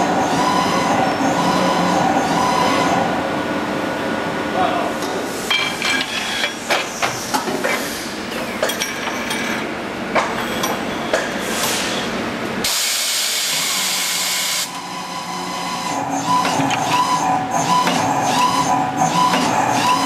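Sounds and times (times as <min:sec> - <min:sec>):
loud hiss of press: 0:12.6 - 0:14.7.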